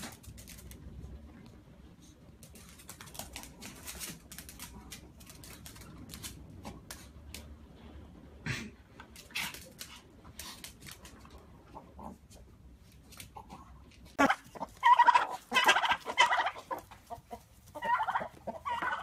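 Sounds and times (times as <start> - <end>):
claws scrabbling on tile floor: 0.0 - 1.0, 2.4 - 7.5, 9.0 - 11.5.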